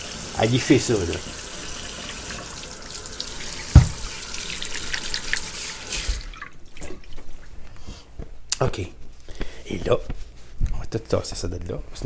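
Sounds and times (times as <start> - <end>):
faucet running into sink: 0.0 - 7.0
sharp knock: 3.7 - 4.0.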